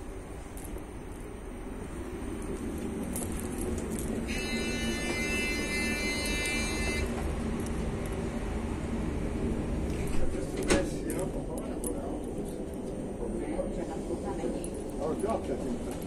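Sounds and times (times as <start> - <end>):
train interior rumble: 0.0 - 16.0
high ringing tone: 4.3 - 7.2.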